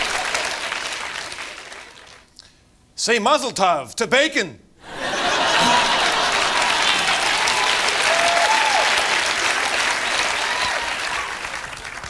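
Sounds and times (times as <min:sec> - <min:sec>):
audience applauding: 0:00.0 - 0:02.2, 0:05.0 - 0:12.0.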